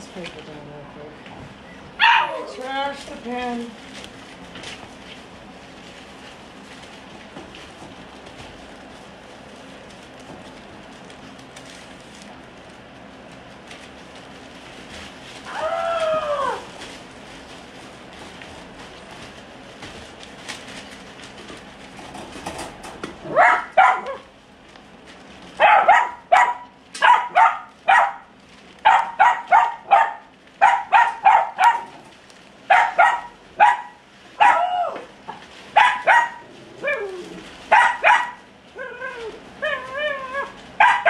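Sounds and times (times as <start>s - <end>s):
dog barking: 2.0s - 2.5s, 23.3s - 24.2s, 25.6s - 31.9s, 32.7s - 34.7s, 35.8s - 36.4s, 37.7s - 38.4s, 40.8s - 41.0s
dog yelping: 2.0s - 2.6s, 23.3s - 24.3s, 25.6s - 31.9s, 32.7s - 35.1s, 35.8s - 41.0s.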